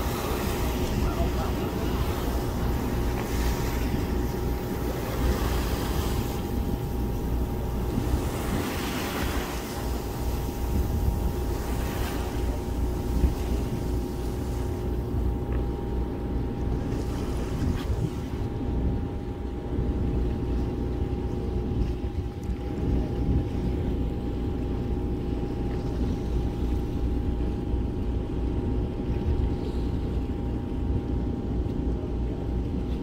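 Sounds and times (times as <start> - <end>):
wind noise: 0.0 - 15.4, 16.9 - 20.2, 21.6 - 24.6
rushing water: 0.0 - 18.6
boat engine rumbling: 0.0 - 33.0.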